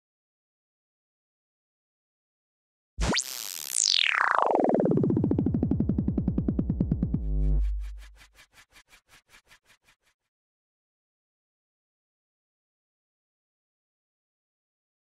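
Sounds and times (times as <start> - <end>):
pulsing tone sweeping down: 3.0 - 8.4.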